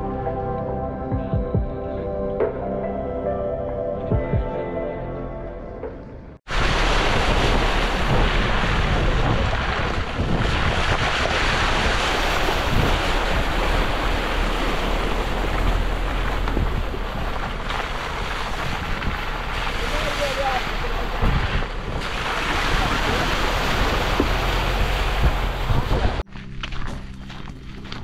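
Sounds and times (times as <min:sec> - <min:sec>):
wind buffeting microphone: 0:06.5 - 0:26.3.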